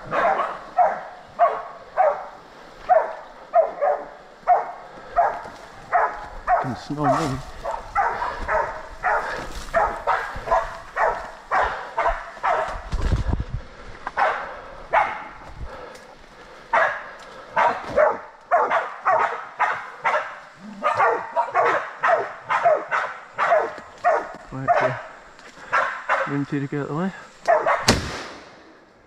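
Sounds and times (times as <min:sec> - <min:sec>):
small dogs barking: 0:00.0 - 0:12.9, 0:14.2 - 0:15.4, 0:16.7 - 0:26.5, 0:27.4 - 0:27.9.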